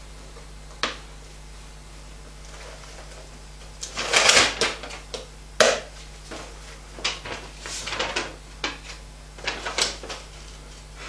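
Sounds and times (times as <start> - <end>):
paper rustling and crinkling: 6.3 - 10.9.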